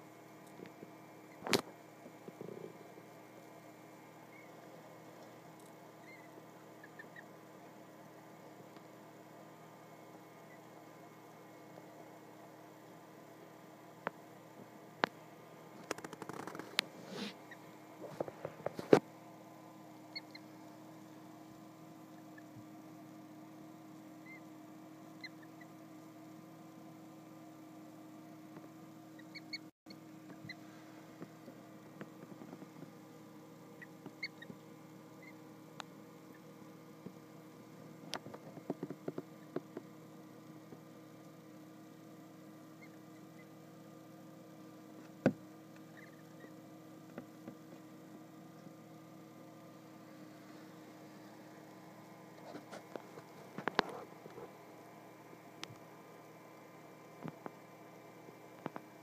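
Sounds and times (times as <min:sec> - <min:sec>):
steady low hum: 0:00.0 - 0:59.0
goslings peeping: 0:06.0 - 0:07.3, 0:20.1 - 0:20.6, 0:33.8 - 0:34.6.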